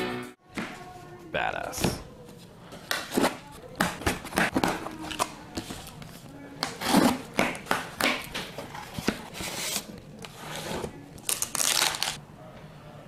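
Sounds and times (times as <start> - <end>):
cardboard tearing and rustling: 9.1 - 12.2.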